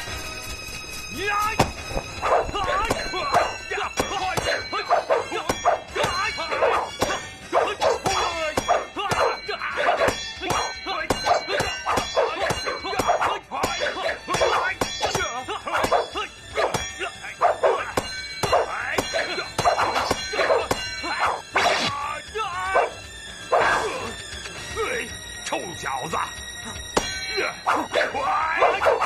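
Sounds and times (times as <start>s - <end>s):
blade clashes: 0.0s - 24.2s, 26.7s - 29.0s
fighters yelling and grunting: 1.2s - 25.1s, 25.8s - 29.0s.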